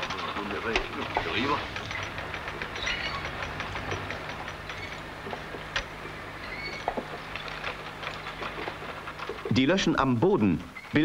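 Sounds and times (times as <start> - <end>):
clicks and knocks: 0.0 - 9.5
winch humming: 0.0 - 11.0.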